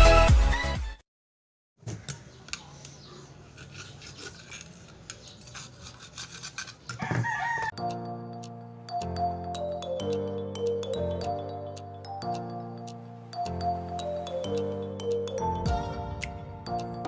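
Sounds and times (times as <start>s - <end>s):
background music: 0.0s - 1.0s, 7.7s - 17.0s.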